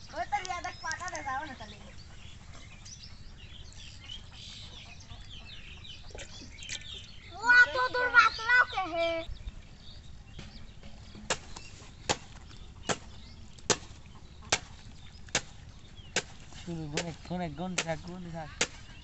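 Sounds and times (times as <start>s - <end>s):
sharp knocks: 10.4s - 18.8s.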